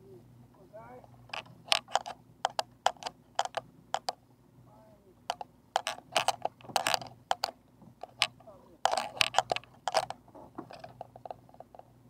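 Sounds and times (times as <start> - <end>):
fishing gear clicking and tapping: 1.3 - 4.2, 5.3 - 11.9.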